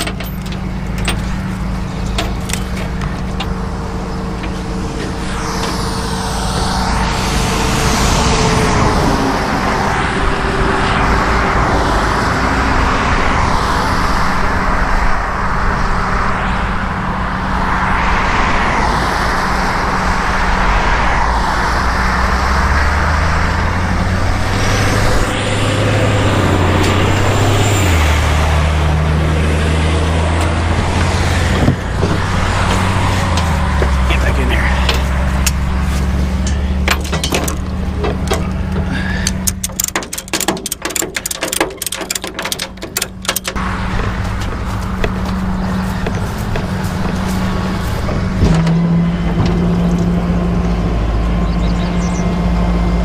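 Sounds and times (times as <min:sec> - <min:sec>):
truck engine idling: 0:00.0 - 0:10.8, 0:23.7 - 0:53.0.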